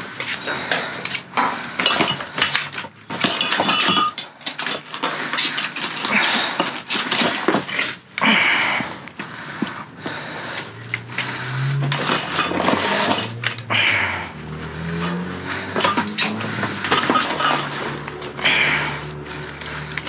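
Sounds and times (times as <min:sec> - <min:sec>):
glass bottles clinking: 0:01.4 - 0:07.9, 0:11.8 - 0:13.6, 0:15.5 - 0:18.4
broken glass rattling: 0:01.8 - 0:07.9, 0:11.9 - 0:13.5, 0:15.7 - 0:18.0.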